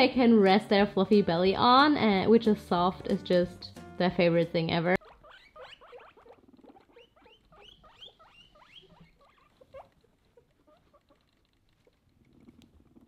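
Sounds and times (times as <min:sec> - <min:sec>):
guinea pig squeaking: 0:04.1 - 0:13.0.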